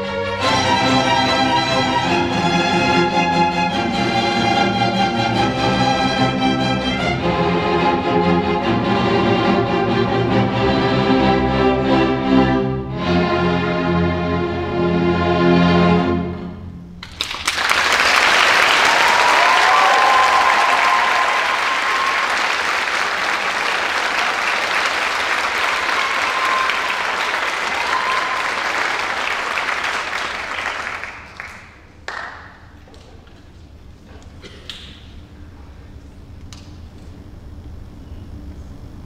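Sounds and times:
orchestra chord: 0:00.0 - 0:17.0
audience applause: 0:17.0 - 0:32.6
crowd cheering: 0:17.4 - 0:31.8.

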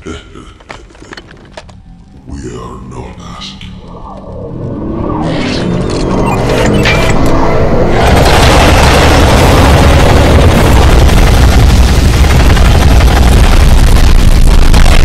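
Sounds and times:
heavy low rumble: 0:00.0 - 0:15.0
booming explosions: 0:07.6 - 0:15.0
rapid weapon fire: 0:07.9 - 0:15.0.

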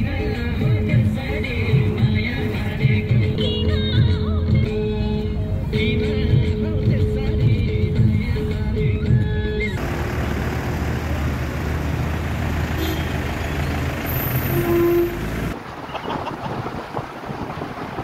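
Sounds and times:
vehicle engine and road noise: 0:00.0 - 0:18.0
car horn tone: 0:12.7 - 0:16.3
wind buffeting microphone: 0:15.6 - 0:18.0.

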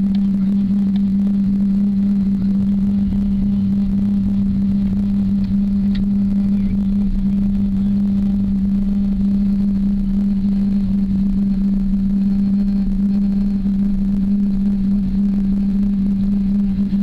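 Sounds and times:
aircraft cabin drone: 0:00.0 - 0:17.0.

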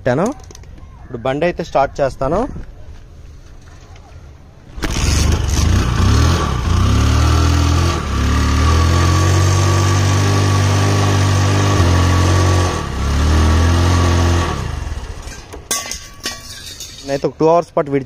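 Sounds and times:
motorcycle engine revving: 0:04.7 - 0:15.5.

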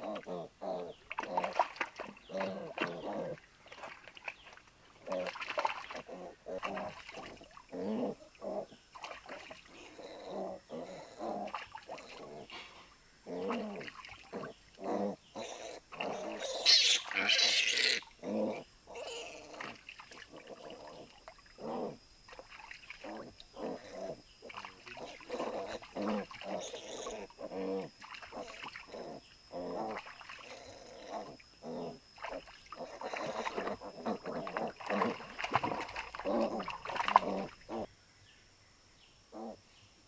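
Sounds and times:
water splashing: 0:01.1 - 0:07.8, 0:08.9 - 0:09.8, 0:13.4 - 0:14.6, 0:19.5 - 0:21.6, 0:22.3 - 0:23.3, 0:24.4 - 0:27.0, 0:28.0 - 0:28.9, 0:29.9 - 0:30.5, 0:32.2 - 0:37.9
piglet squealing and grunting: 0:09.8 - 0:12.3, 0:13.3 - 0:19.8, 0:25.0 - 0:32.0.

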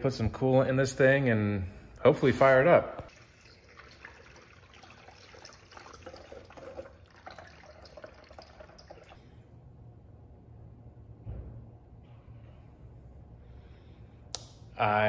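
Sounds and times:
liquid pouring into funnel: 0:03.1 - 0:09.2.

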